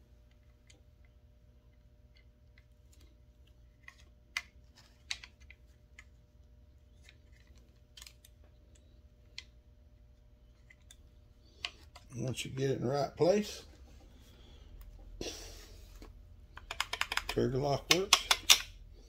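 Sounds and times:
plastic clicks and snaps: 0:16.5 - 0:18.7.

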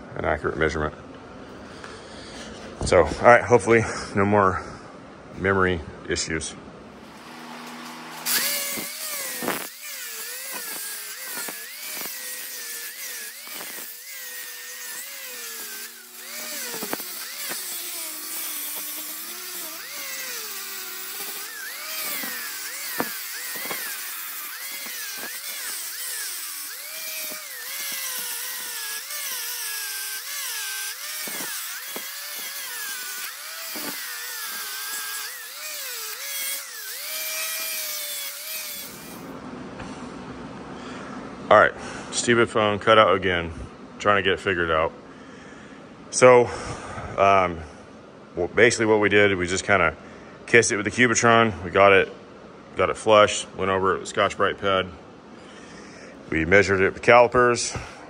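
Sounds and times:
grinder motor whine: 0:07.0 - 0:39.4
grinder grinding metal: 0:07.1 - 0:39.3.

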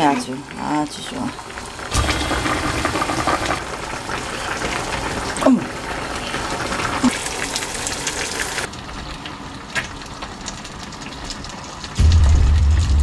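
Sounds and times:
eggs frying in oil: 0:00.0 - 0:13.0.

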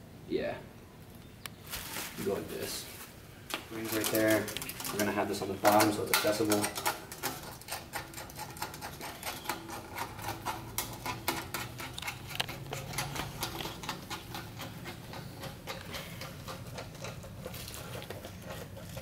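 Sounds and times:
bubble wrap crinkling: 0:01.6 - 0:05.2
pipe sections clicking together: 0:03.5 - 0:19.0.

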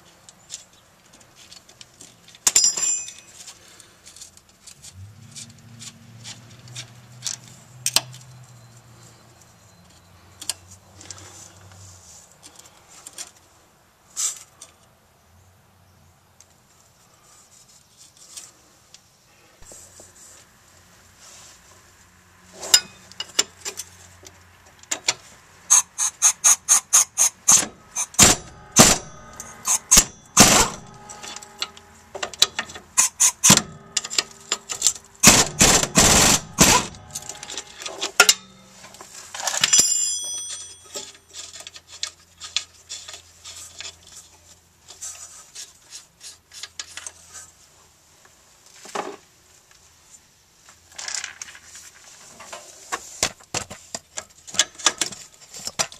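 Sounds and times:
metal clinks: 0:02.5 - 0:03.5, 0:25.7 - 0:41.6
ratcheting wrench clicking: 0:25.7 - 0:30.8, 0:32.4 - 0:37.5.

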